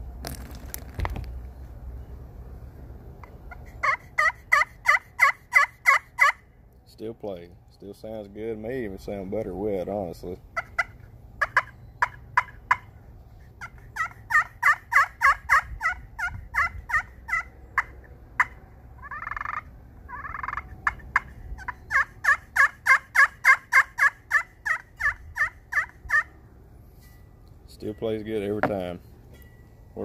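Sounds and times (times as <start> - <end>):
turkey call clucks: 3.5 - 6.4, 10.5 - 26.4
turkey call yelps: 3.5 - 6.4, 10.6 - 26.4
turkey call purrs: 10.6 - 26.3.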